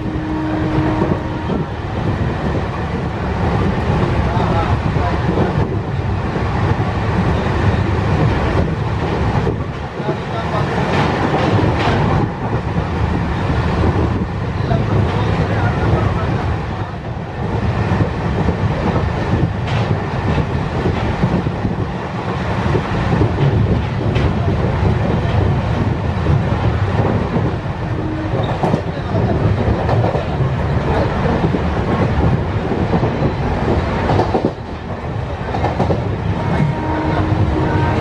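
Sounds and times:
train wheels rumbling on rails: 0:00.0 - 0:38.0.

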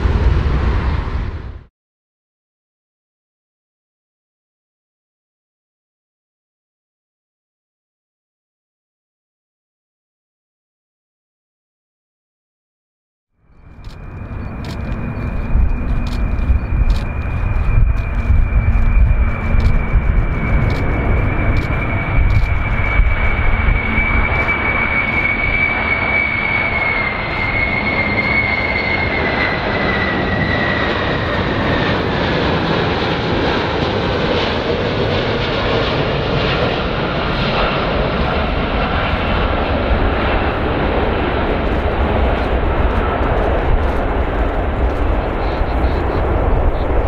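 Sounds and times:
jet engines rumbling and whining: 0:00.0 - 0:01.7, 0:13.4 - 0:47.0
wind buffeting microphone: 0:13.6 - 0:47.0.

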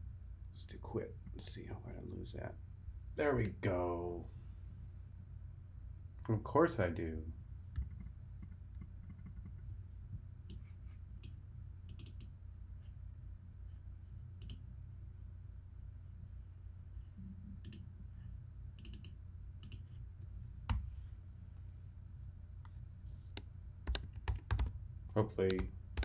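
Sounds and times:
steady low hum: 0:00.0 - 0:26.0
computer mouse clicks: 0:10.4 - 0:12.4, 0:14.4 - 0:14.6, 0:17.6 - 0:17.9, 0:18.8 - 0:20.0.

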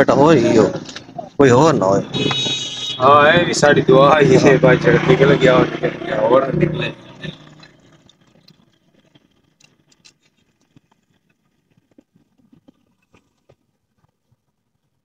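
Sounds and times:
small metal parts clicking: 0:07.5 - 0:11.0.

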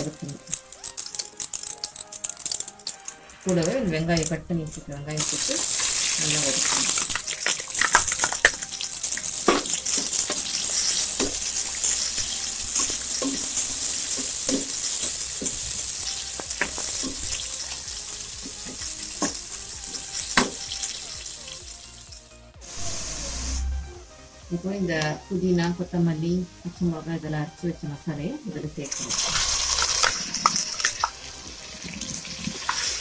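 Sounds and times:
onions sizzling in hot oil: 0:00.0 - 0:23.7, 0:28.3 - 0:33.0.

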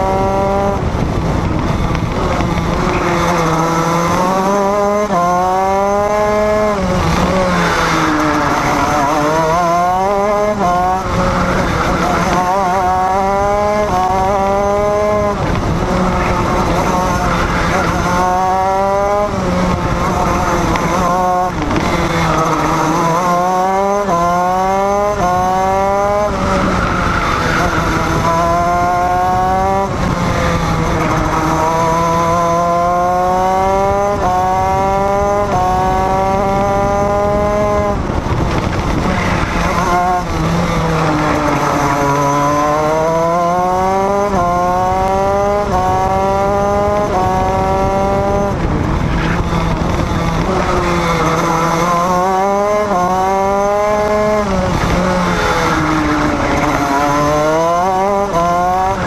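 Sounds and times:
racing engine accelerating: 0:00.0 - 0:59.0.

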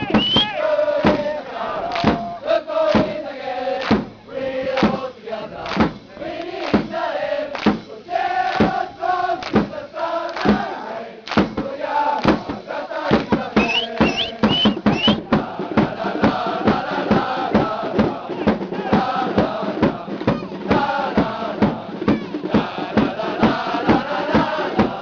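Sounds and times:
crowd chanting: 0:00.0 - 0:25.0
sharp beats: 0:11.3 - 0:25.0.

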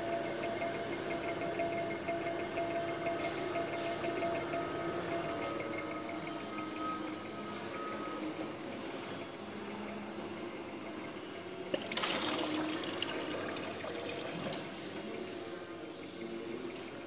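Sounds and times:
water running into basin: 0:11.7 - 0:15.0.

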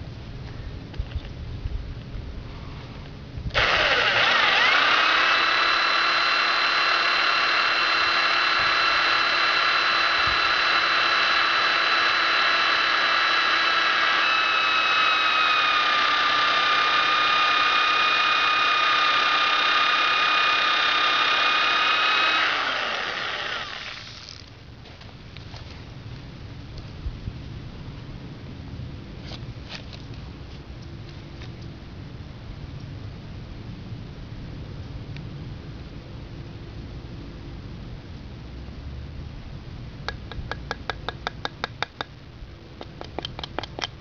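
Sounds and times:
electric drill whining: 0:03.5 - 0:24.4.

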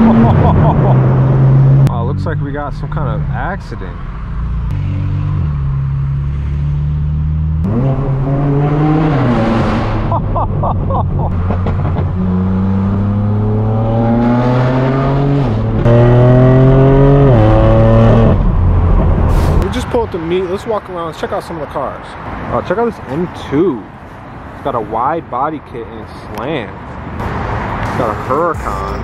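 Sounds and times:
car engine revving: 0:00.0 - 0:19.6.

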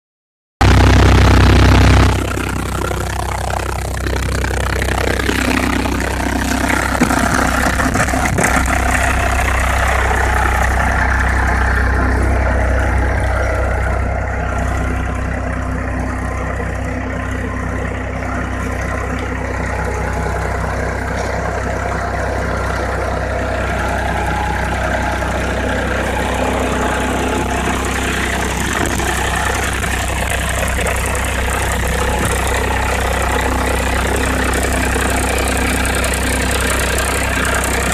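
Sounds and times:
tractor diesel engine under load: 0:00.6 - 0:37.9.

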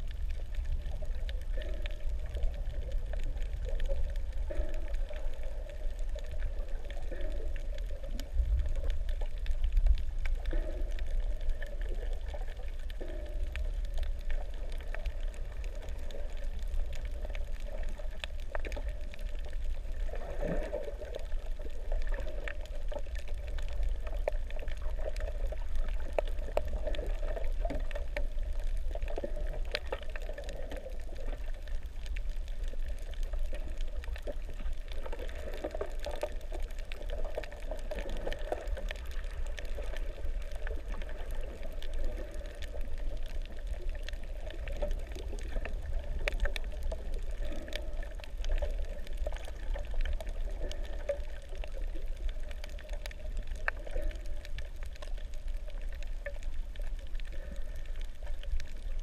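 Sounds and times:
faint scattered clicks: 0:00.0 - 0:59.0
muffled underwater water rush: 0:00.0 - 0:59.0.

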